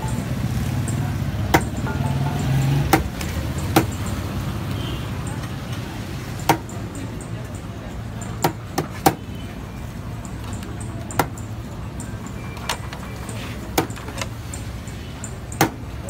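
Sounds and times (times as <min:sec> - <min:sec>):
metal scoops clinking on plates: 0:01.6 - 0:04.3.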